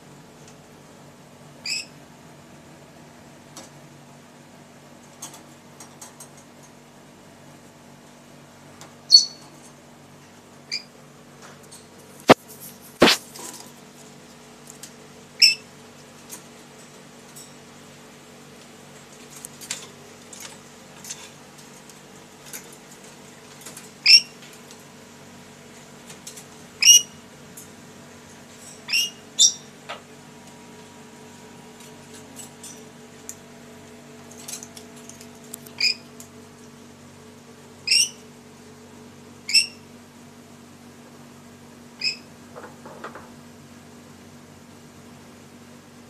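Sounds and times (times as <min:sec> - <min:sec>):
parrot shrill calls: 0:01.6 - 0:01.9, 0:09.1 - 0:09.4, 0:15.4 - 0:15.6, 0:24.0 - 0:24.3, 0:26.8 - 0:27.2, 0:28.9 - 0:29.7, 0:35.8 - 0:36.0, 0:37.8 - 0:38.2, 0:39.5 - 0:39.8, 0:42.0 - 0:42.2
soft bird chirps: 0:01.6 - 0:02.0, 0:09.1 - 0:09.5, 0:37.8 - 0:38.2, 0:42.0 - 0:42.2.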